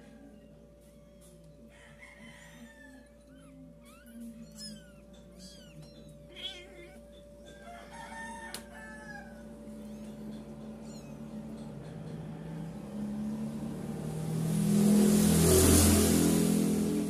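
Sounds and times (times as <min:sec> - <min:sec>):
kittens mewing: 0:02.3 - 0:12.2.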